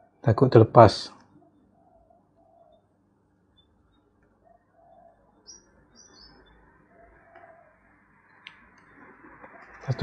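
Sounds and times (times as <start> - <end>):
faint bird chirps: 1.2 - 10.0
dove cooing: 1.4 - 2.8, 4.4 - 8.0.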